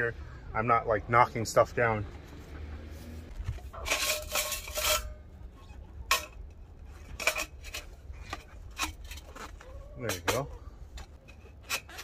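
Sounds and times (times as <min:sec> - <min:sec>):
metal pipes clinking and scraping: 0:02.5 - 0:12.0.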